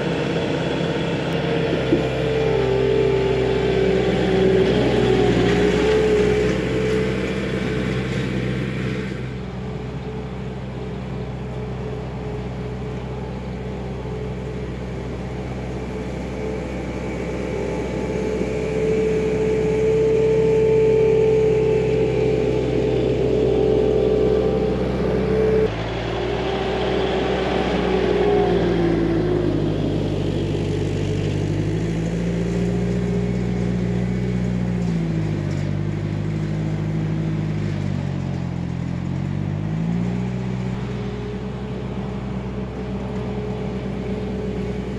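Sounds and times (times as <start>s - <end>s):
diesel engine running: 0.0s - 44.9s.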